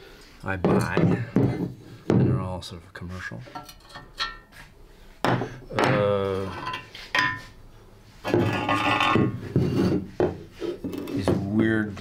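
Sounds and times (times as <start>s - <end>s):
ceramic scraping across table: 8.2s - 11.3s.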